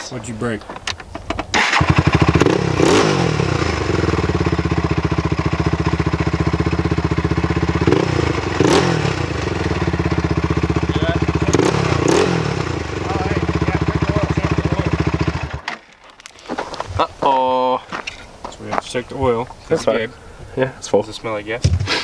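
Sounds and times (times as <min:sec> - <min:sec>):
atv engine revving: 0:01.5 - 0:15.7.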